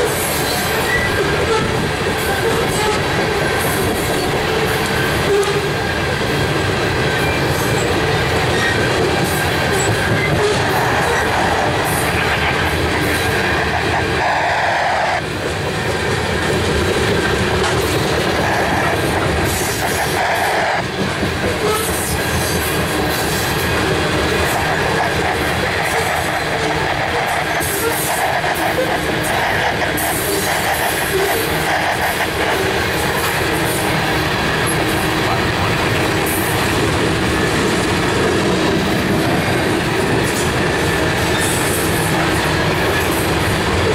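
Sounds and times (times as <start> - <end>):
train wheels rumbling on rails: 0.0 - 43.9
wheels clicking over rail joints: 15.4 - 43.9.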